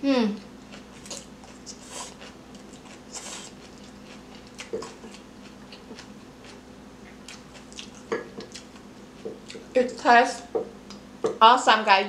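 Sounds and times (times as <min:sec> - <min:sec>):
faint steady hum: 0:00.0 - 0:12.0
chewing and slurping noodles: 0:00.7 - 0:09.7.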